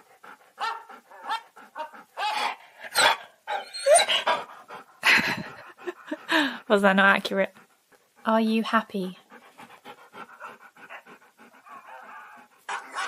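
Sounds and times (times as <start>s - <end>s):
dog whining and yowling: 0.6s - 4.5s, 11.6s - 13.0s.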